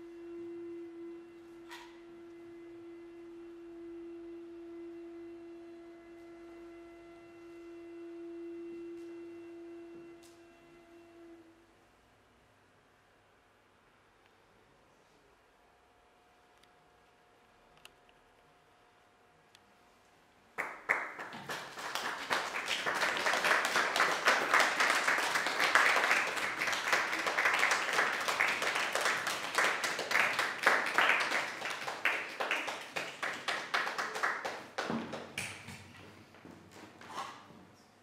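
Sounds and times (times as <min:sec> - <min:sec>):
audience applauding: 0:20.6 - 0:35.7.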